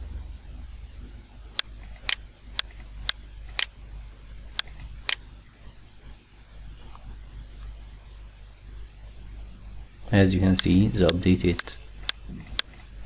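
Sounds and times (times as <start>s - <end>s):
computer mouse button clicking: 1.6s - 3.7s, 10.6s - 12.9s.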